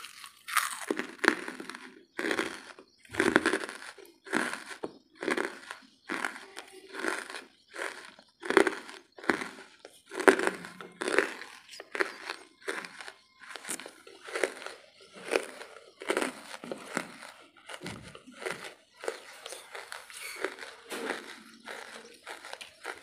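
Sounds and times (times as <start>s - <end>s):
chewing charcoal crunches: 0.0s - 23.0s.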